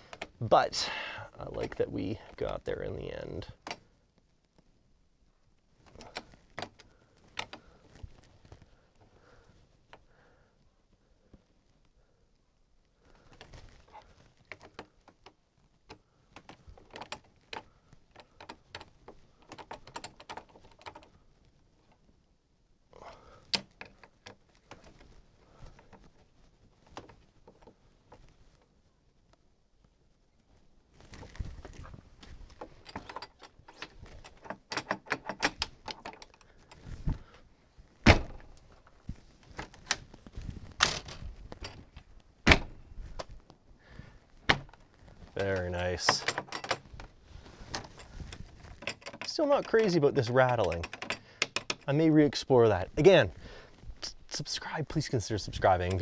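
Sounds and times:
door lock clicks and rattles: 5.9s - 7.6s, 14.5s - 21.2s, 32.6s - 36.4s, 40.8s - 41.9s, 45.5s - 46.9s, 48.8s - 51.9s
door latch clicking and rattling: 32.7s - 36.4s, 46.1s - 46.8s, 48.8s - 49.3s, 50.5s - 51.9s
door shutting with thud: 38.0s - 38.4s.

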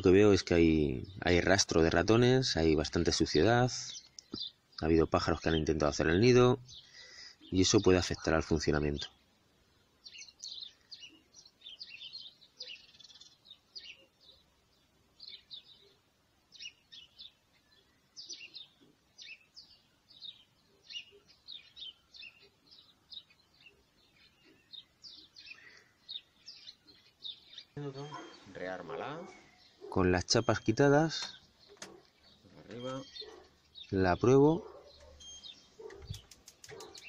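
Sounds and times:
small birds chirping: 0.0s - 37.0s.

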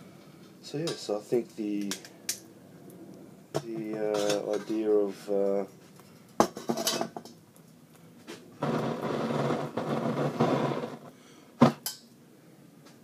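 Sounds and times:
rushing air blowing out flame: 8.6s - 11.1s.

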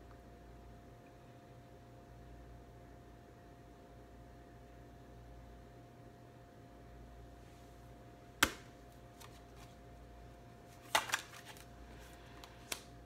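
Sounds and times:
faint steady hum: 0.0s - 13.0s
card snap: 8.4s - 9.4s, 10.8s - 11.6s
cards rustling and clicking: 8.4s - 9.8s, 10.6s - 13.0s.

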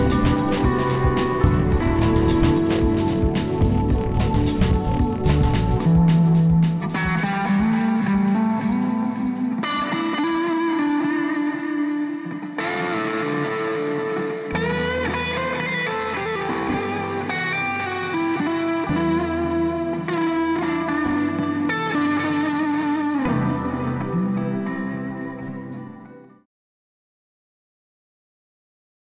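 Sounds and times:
deep bass: 0.0s - 9.3s
guitar with effects: 0.0s - 26.4s.

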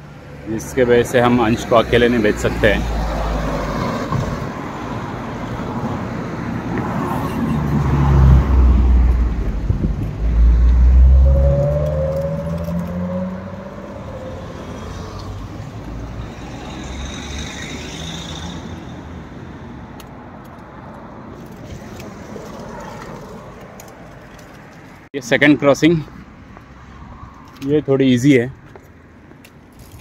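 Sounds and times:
cars driving past: 0.0s - 29.7s
steady traffic hum: 0.0s - 30.0s
engine accelerating: 7.1s - 15.6s.

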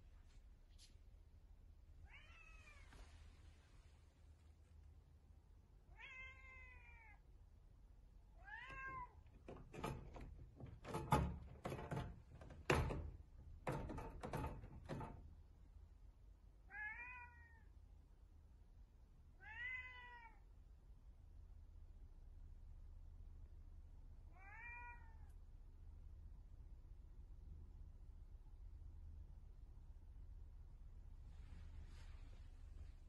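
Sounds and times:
cat meowing: 2.0s - 2.9s, 5.9s - 7.2s, 8.4s - 9.2s, 16.7s - 17.7s, 19.4s - 20.4s, 24.4s - 25.3s
cat pawing at glass door: 8.7s - 15.3s.

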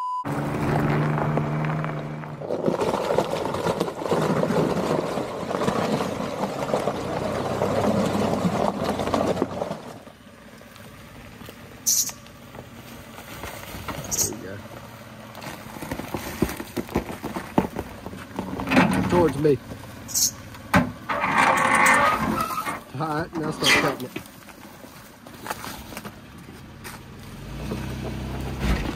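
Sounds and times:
engine running: 0.2s - 28.9s
tires splashing through mud: 0.3s - 28.9s.

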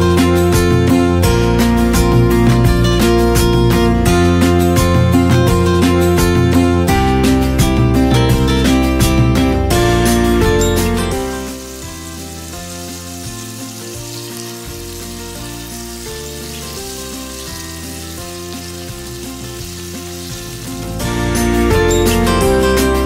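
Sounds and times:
potatoes sizzling in oil: 10.2s - 23.0s.

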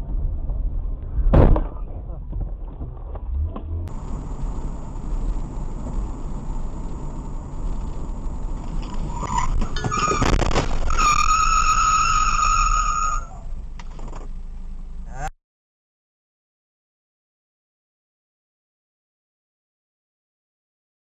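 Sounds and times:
road rumble inside car: 0.0s - 15.3s
brake squeal: 3.4s - 14.4s.

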